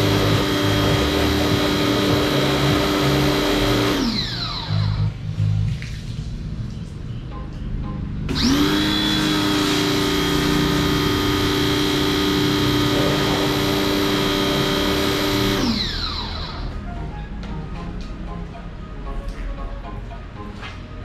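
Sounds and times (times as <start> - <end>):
small electric motor whining: 0.0 - 5.1, 8.3 - 16.7.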